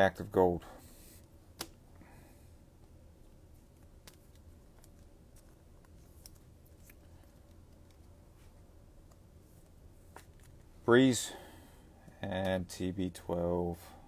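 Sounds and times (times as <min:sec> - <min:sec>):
low room hum: 0:00.0 - 0:14.0
trading cards rustling: 0:03.2 - 0:10.8.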